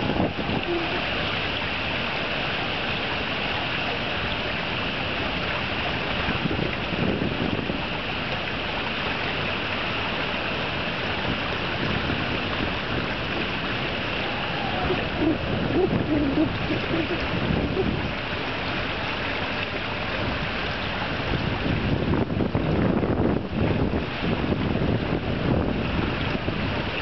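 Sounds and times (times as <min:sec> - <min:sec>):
wind rushing over microphone: 0:00.0 - 0:01.6, 0:06.1 - 0:08.0, 0:11.2 - 0:18.4, 0:20.2 - 0:27.0
water lapping: 0:00.0 - 0:27.0.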